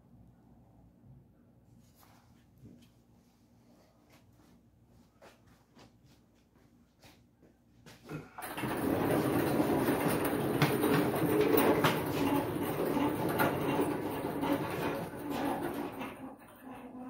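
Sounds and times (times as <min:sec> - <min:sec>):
caster wheels rolling and rattling: 0:08.4 - 0:17.0.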